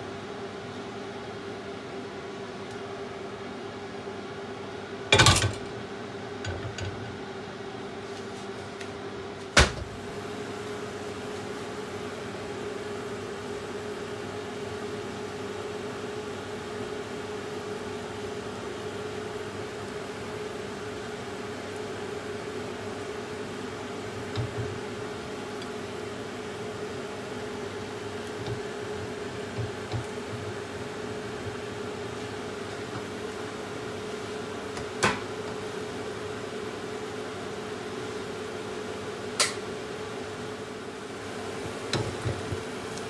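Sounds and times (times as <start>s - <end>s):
kitchen hum: 0.2s - 43.0s.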